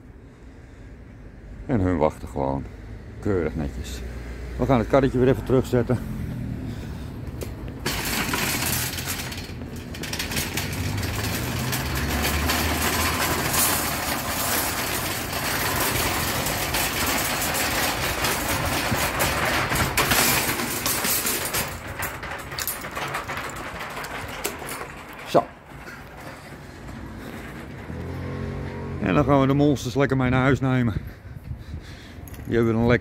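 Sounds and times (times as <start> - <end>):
shopping cart rattling: 7.7 - 28.4.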